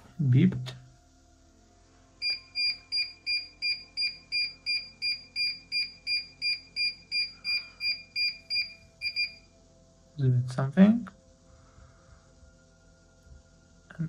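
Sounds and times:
rapid electronic beeps: 0:02.2 - 0:09.5.

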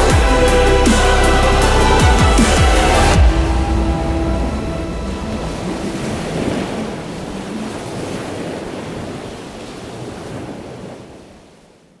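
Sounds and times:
sea waves washing on shore: 0:02.8 - 0:12.0.

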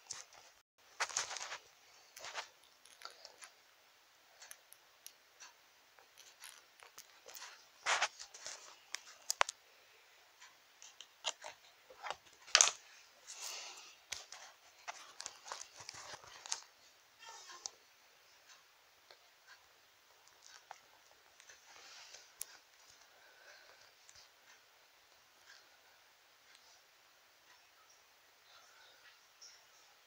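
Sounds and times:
plastic toy figures clicking and scraping: 0:00.0 - 0:03.6, 0:04.4 - 0:09.6, 0:10.4 - 0:17.8, 0:19.1 - 0:24.3.

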